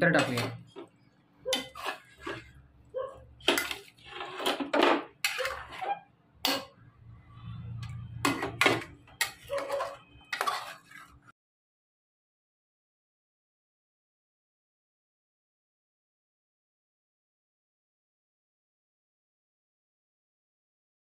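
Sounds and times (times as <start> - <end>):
spoon scraping a metal pot: 0.1 - 11.3.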